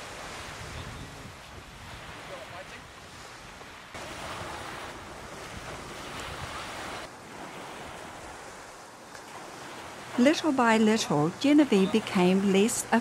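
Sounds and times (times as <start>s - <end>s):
wind on microphone: 0.0s - 8.8s
sea washing against wharf: 0.0s - 13.0s.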